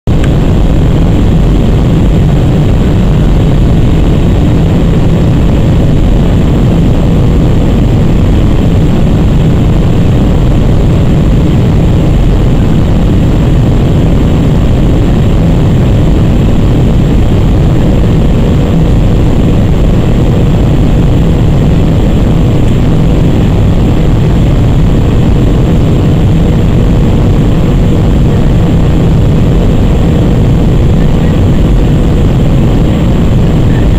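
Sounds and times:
jet engines rumbling in cabin: 0:00.0 - 0:33.9.

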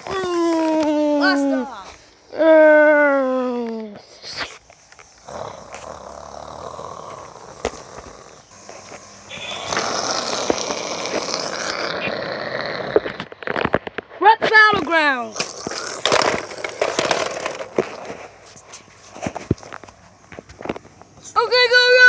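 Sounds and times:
breathy mouth rushing noise: 0:04.0 - 0:13.1.

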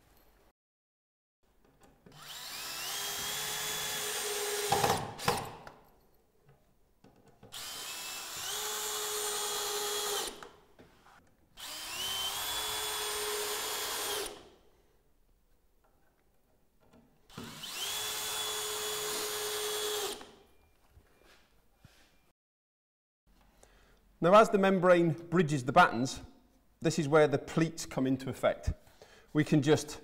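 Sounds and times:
cordless drill driving screws: 0:02.1 - 0:05.8, 0:07.5 - 0:10.6, 0:11.6 - 0:14.5, 0:17.3 - 0:20.4.

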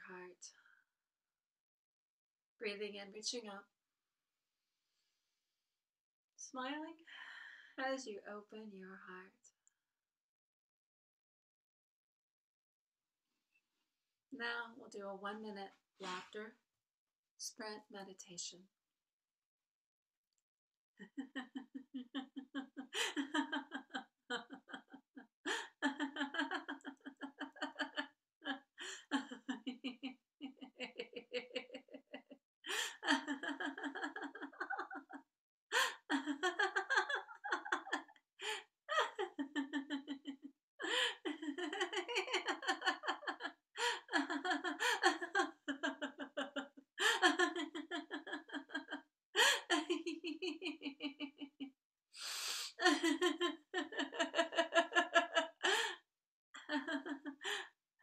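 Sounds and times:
woman laughing: 0:21.0 - 0:51.7, 0:52.8 - 0:56.0, 0:56.6 - 0:57.7
quick in-breaths: 0:52.2 - 0:52.8.

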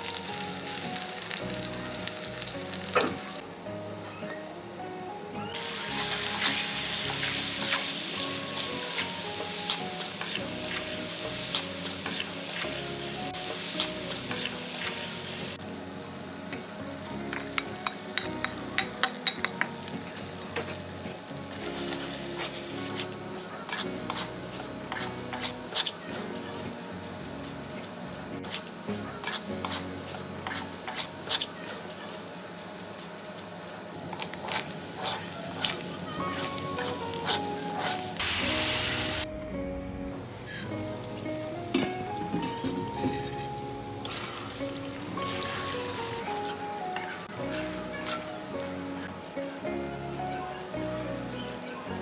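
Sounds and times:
fish frying in hot oil: 0:00.0 - 0:03.4.

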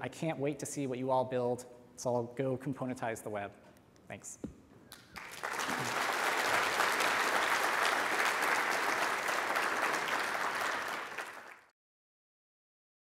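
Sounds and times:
large audience applauding: 0:04.9 - 0:11.7.

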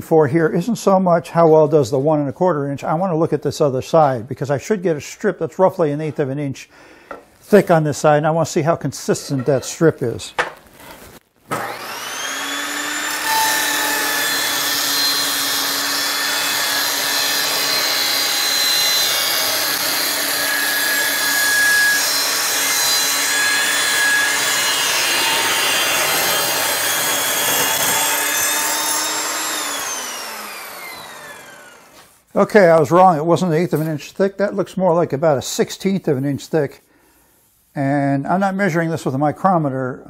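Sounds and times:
table saw motor whine: 0:11.5 - 0:32.1
saw blade cutting wood: 0:11.5 - 0:32.2.

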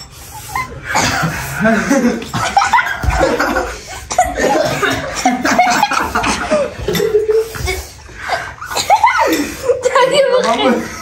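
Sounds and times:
boys laughing: 0:00.2 - 0:11.0
indistinct talk: 0:04.3 - 0:11.0.

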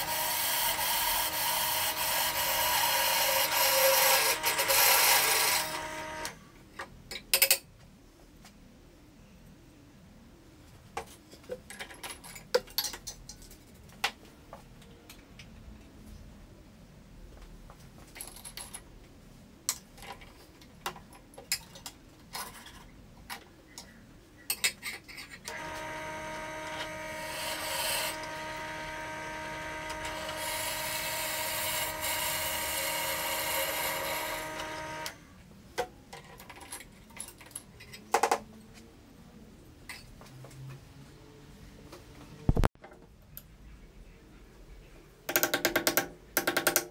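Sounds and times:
drill bit cutting hiss: 0:00.0 - 0:06.4, 0:25.5 - 0:35.2
drill press motor humming: 0:00.0 - 0:06.4, 0:25.5 - 0:35.2.

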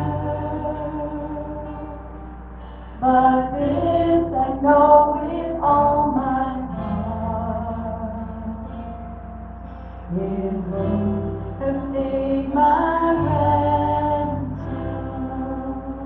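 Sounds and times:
woman singing: 0:03.0 - 0:08.6, 0:10.1 - 0:16.0.

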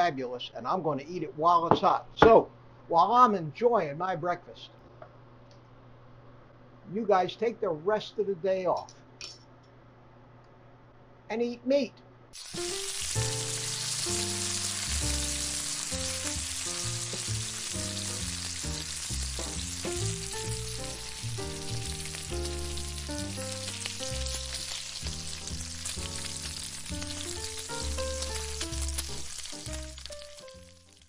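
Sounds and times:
background music: 0:12.4 - 0:31.0
bacon sizzling: 0:12.4 - 0:31.0.

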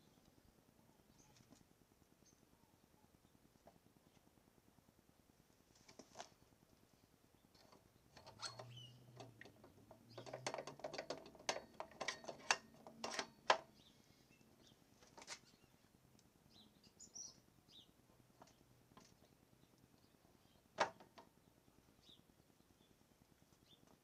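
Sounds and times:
sharp metal clicks and taps: 0:07.6 - 0:13.7.

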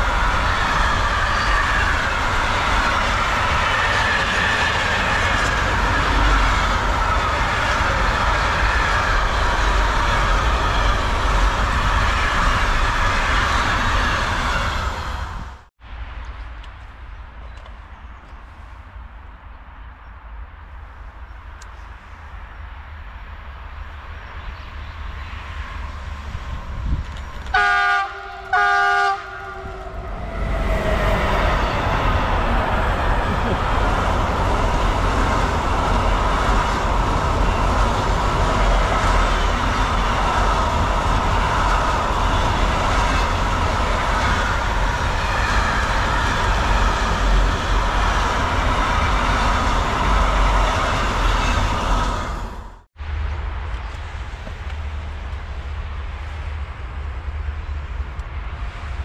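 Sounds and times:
train wheels on rails: 0:00.0 - 0:59.0
train horn blasts: 0:27.5 - 0:31.2.

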